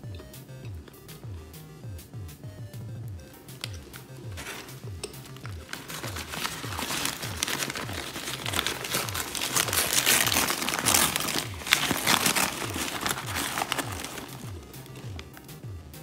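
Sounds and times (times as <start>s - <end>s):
background music with low beat: 0.0s - 16.0s
paper bag crinkling: 3.6s - 15.5s.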